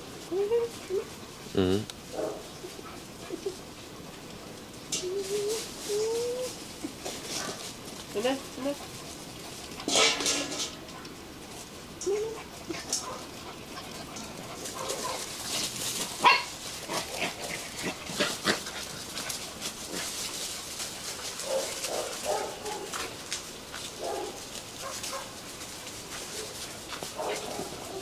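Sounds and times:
paws scuffling on ground: 0.0s - 28.0s
puppies yipping and barking: 12.0s - 25.6s.

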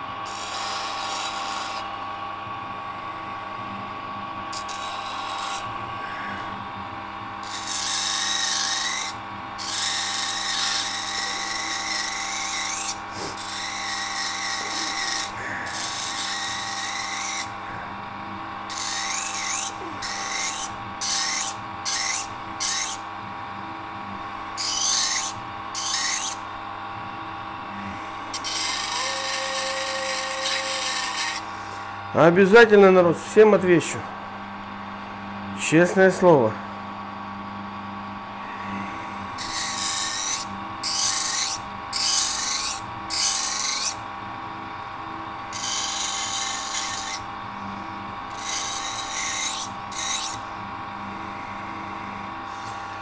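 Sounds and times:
power grinder motor hum: 0.1s - 32.8s, 38.1s - 53.0s
metal grinding on grinder: 0.2s - 2.0s, 4.2s - 6.7s, 7.4s - 23.1s, 24.6s - 26.5s, 27.4s - 32.8s, 38.3s - 44.1s, 45.5s - 53.0s.

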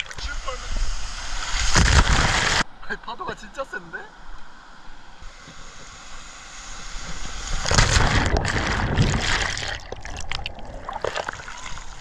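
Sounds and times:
wave breaking with churning water: 7.0s - 12.0s.

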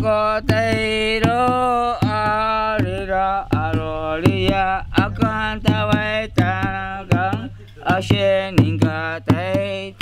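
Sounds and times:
hand drum: 0.0s - 10.0s
low steady hum: 0.0s - 10.0s.

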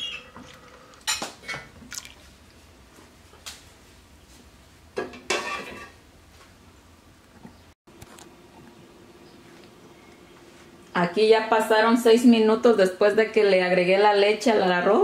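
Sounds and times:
liquid sloshing: 1.6s - 2.6s.

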